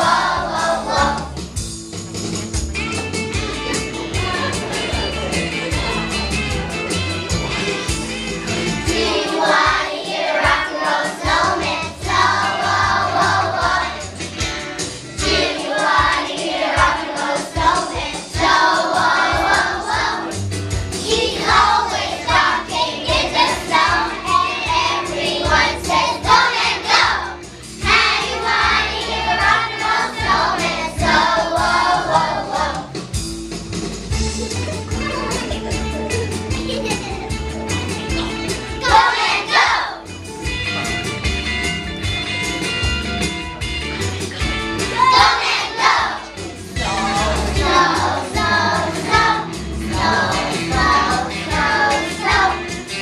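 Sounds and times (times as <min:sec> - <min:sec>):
children's choir singing: 0:00.0 - 0:01.4, 0:08.8 - 0:14.3, 0:15.2 - 0:20.4, 0:21.0 - 0:33.0, 0:38.8 - 0:40.1, 0:45.0 - 0:53.0
instrumental accompaniment: 0:00.0 - 0:53.0.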